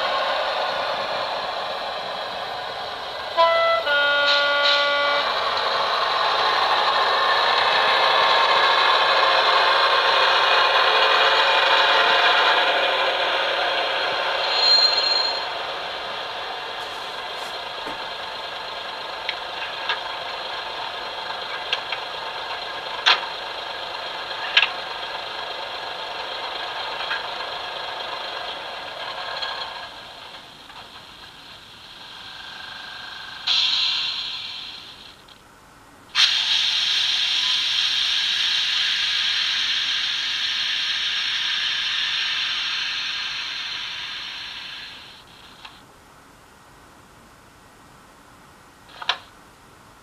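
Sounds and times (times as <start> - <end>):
diesel railcar running sound: 0.0 - 50.0
model train horn toots: 3.3 - 5.4
brief high squeal: 14.4 - 15.6.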